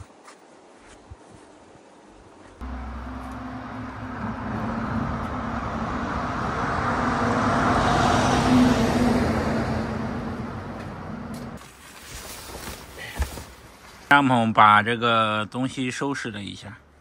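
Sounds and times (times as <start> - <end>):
vehicle passing on road: 2.6 - 11.6.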